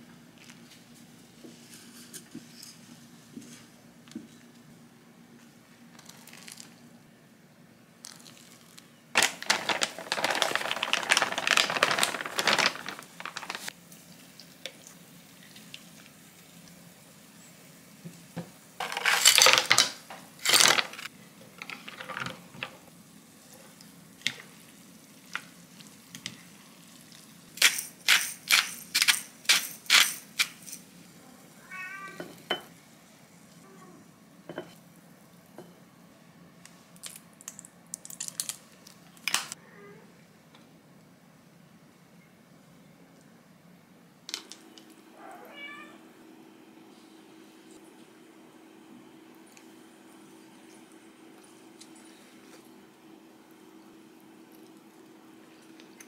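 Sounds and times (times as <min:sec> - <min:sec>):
ice cubes tumbling into bowl: 0:08.1 - 0:13.7, 0:18.8 - 0:21.0
cat meowing: 0:31.6 - 0:32.3, 0:45.2 - 0:46.0.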